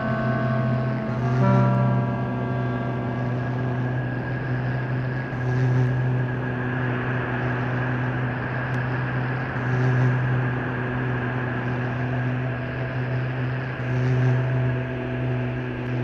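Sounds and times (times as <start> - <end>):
faint high held tone: 0.0 - 7.0
hiss-like noise: 0.0 - 16.0
low drone: 0.0 - 16.0.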